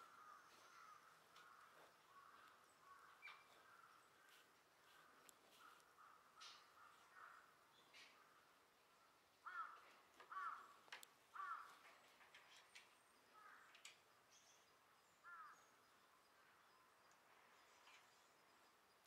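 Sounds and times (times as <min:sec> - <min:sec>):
crow cawing: 0:00.0 - 0:08.5, 0:09.4 - 0:12.0, 0:13.3 - 0:13.8, 0:15.2 - 0:15.7.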